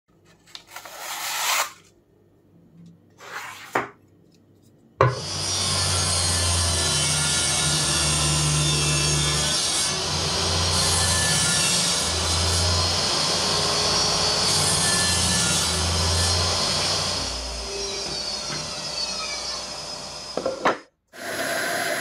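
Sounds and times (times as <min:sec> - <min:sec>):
table saw cutting wood: 0:05.1 - 0:22.0.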